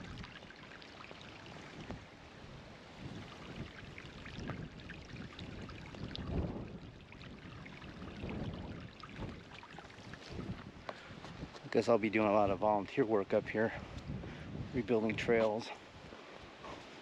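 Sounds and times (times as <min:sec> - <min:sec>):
small splashes: 0:00.0 - 0:02.2, 0:03.0 - 0:11.1.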